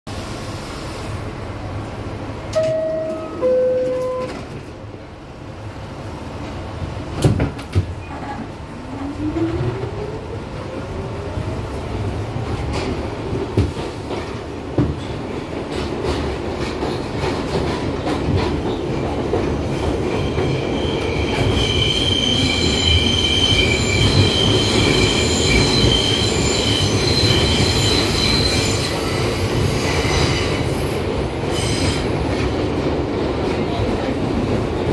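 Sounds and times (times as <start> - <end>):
train rumble: 0.1 - 34.9
train doors shutting: 0.2 - 5.1, 6.3 - 30.7
two-tone falling door chime: 2.6 - 4.3.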